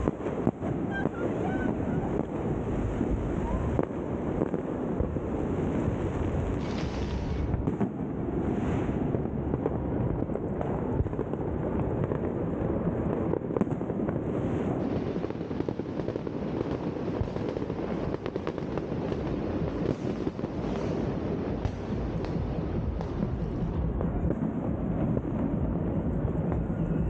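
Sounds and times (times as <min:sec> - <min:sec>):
fireworks crackling and popping: 0:00.0 - 0:27.0
low rumble: 0:05.0 - 0:12.0, 0:21.1 - 0:27.0.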